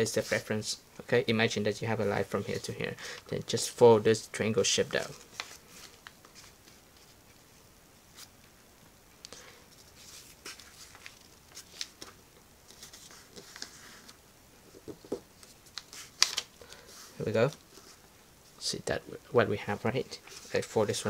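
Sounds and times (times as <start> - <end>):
paper rustling and crackling: 5.0 - 7.4, 9.8 - 18.0, 20.2 - 21.0.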